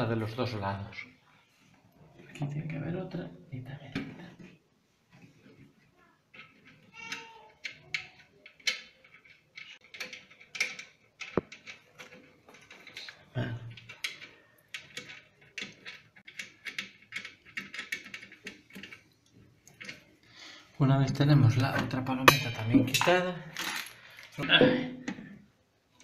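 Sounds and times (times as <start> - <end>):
wing nut clicking and scraping: 6.3 - 20.1.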